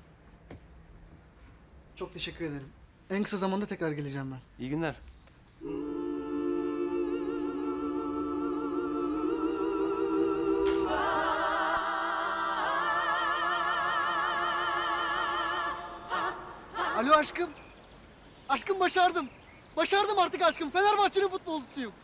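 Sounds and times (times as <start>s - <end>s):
choir singing held chords: 5.6s - 17.6s.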